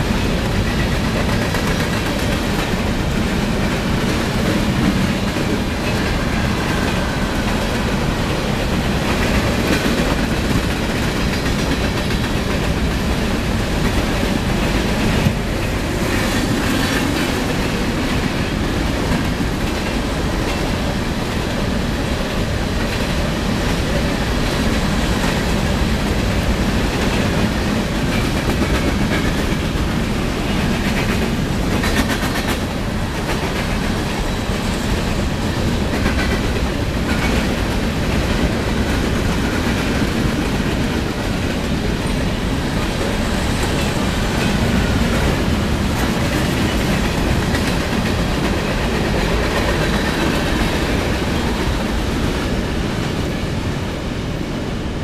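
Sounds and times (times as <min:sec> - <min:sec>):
train wheels rumbling on rail: 0:00.0 - 0:55.0
wheels clickety-clack on rail joints: 0:00.0 - 0:55.0.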